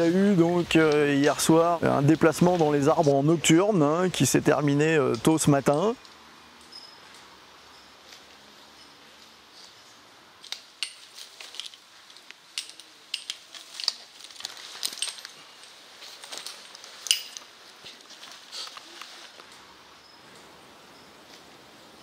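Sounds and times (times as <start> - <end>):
metal carabiners clinking: 10.4 - 18.8.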